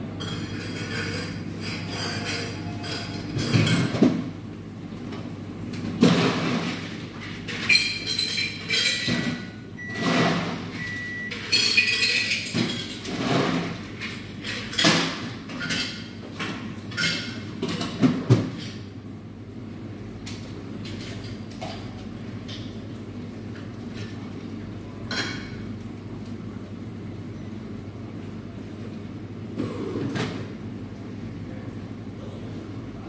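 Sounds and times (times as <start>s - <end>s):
cups and glassware clinking: 11.3s - 12.9s.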